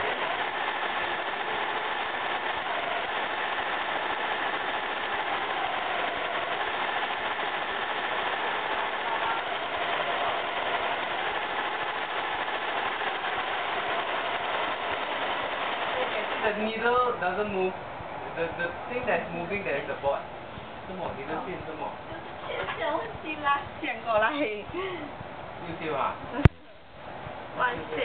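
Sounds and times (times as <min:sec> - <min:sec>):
embroidery machine clattering: 0:00.0 - 0:17.0.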